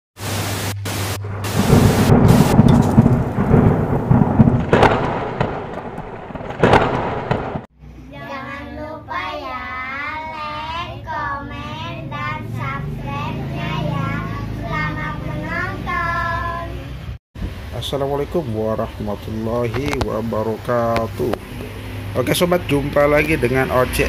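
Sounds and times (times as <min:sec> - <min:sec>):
thunder rumbling and cracking: 0:00.9 - 0:07.7
children singing: 0:08.2 - 0:17.0.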